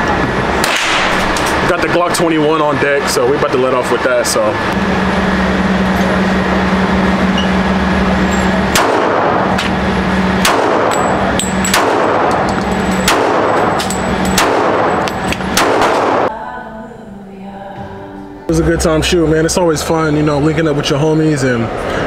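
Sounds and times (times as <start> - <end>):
steady low hum: 0.0 - 22.0
pistol shots ringing indoors: 0.6 - 1.5, 8.7 - 9.6, 10.4 - 16.3.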